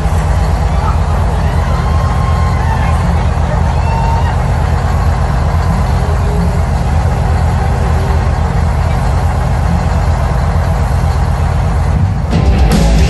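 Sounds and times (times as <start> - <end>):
truck engine idling: 0.0 - 13.0.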